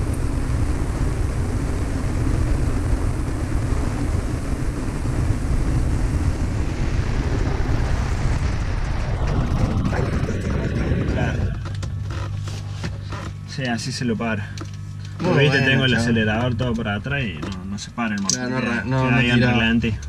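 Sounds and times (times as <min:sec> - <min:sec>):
propeller plane engine running: 0:00.0 - 0:20.0.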